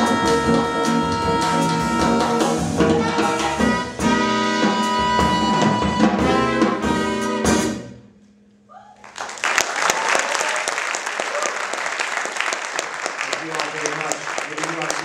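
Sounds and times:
upright bass: 0.0s - 7.8s
saxophone: 0.0s - 8.0s
trumpet: 0.0s - 8.1s.

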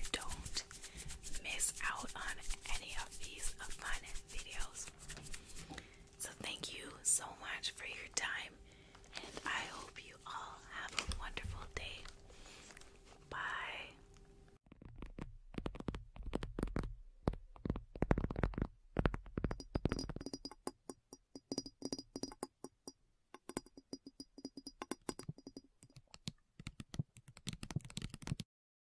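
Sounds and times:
taps and clicks: 14.7s - 28.4s.

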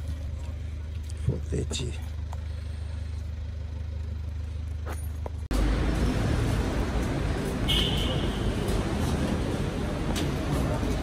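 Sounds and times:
car park background noise: 0.0s - 11.0s
van engine idling: 0.0s - 11.0s.

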